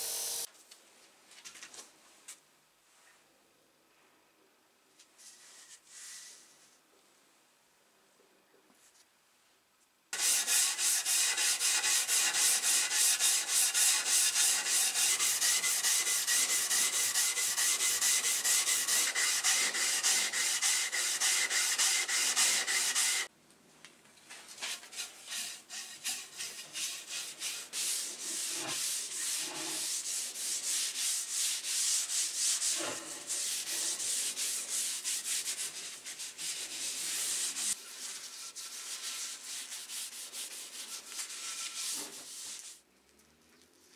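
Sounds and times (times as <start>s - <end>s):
paper towel rubbing handle: 10.2s - 23.3s
sanding wooden handle: 10.2s - 23.3s, 24.6s - 42.7s.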